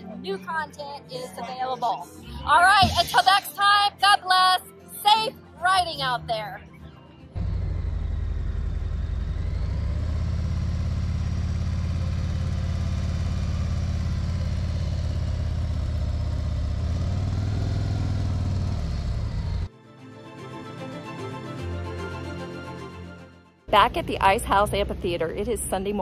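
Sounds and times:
motorcycle engine running: 0:07.4 - 0:19.7, 0:23.7 - 0:26.0.

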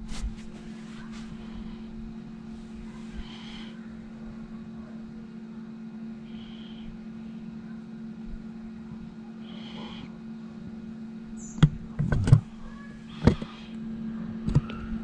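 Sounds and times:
computer low hum: 0:00.0 - 0:15.0
floppy drive clicks and clunks: 0:11.4 - 0:15.0.

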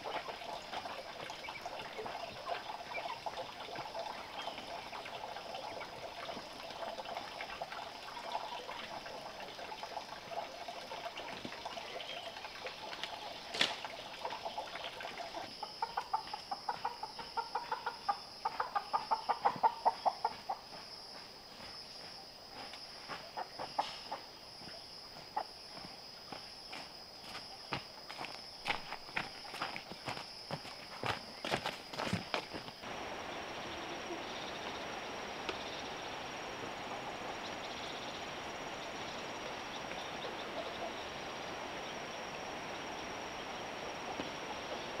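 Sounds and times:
high insect drone: 0:00.0 - 0:45.0
chickens clucking: 0:14.2 - 0:20.7, 0:23.3 - 0:24.3.

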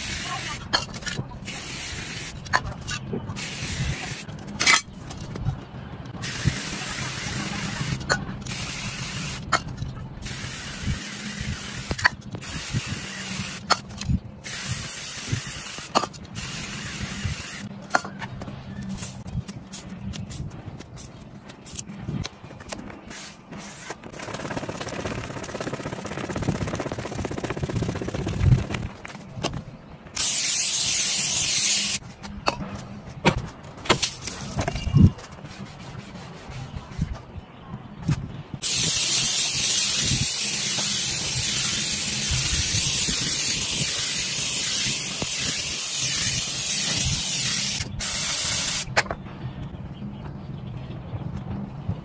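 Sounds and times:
spray paint can hissing: 0:00.0 - 0:00.6, 0:01.4 - 0:02.4, 0:03.4 - 0:04.3, 0:06.2 - 0:09.5, 0:10.2 - 0:13.8, 0:14.4 - 0:17.7, 0:23.1 - 0:28.9, 0:30.2 - 0:32.0, 0:38.6 - 0:48.9.

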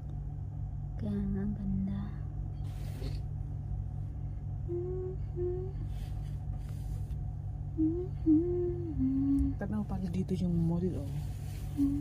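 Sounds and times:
steady low room hum: 0:00.0 - 0:12.0
person humming short notes: 0:04.7 - 0:05.9, 0:07.7 - 0:09.6, 0:11.7 - 0:12.0.

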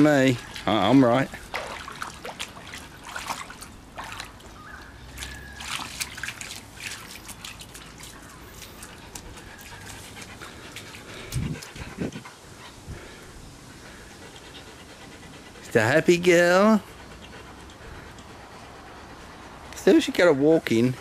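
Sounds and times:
dog paws splashing in water: 0:00.0 - 0:12.2.

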